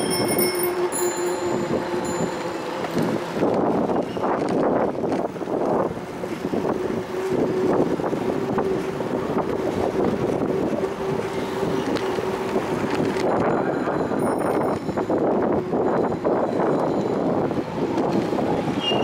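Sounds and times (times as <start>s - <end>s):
steady hum: 0.0s - 4.0s
bicycle clicks: 0.0s - 7.5s, 11.1s - 19.0s
bicycle road rattle: 0.0s - 19.0s
wind rushing over microphone: 0.0s - 19.0s.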